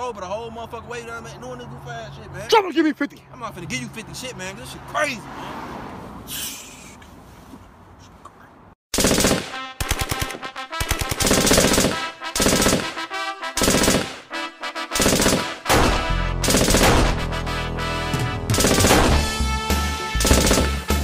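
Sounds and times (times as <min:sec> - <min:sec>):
machine-gun fire: 0:09.0 - 0:13.0, 0:13.6 - 0:14.3, 0:15.0 - 0:17.3, 0:18.5 - 0:19.4, 0:20.2 - 0:21.0
music with horn-like tones: 0:09.4 - 0:11.2, 0:11.8 - 0:21.0.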